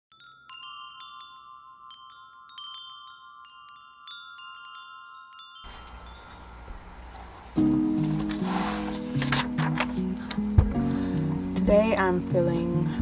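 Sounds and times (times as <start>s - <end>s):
wind chimes ringing: 0.1s - 7.7s
steady rushing hiss: 5.7s - 9.2s.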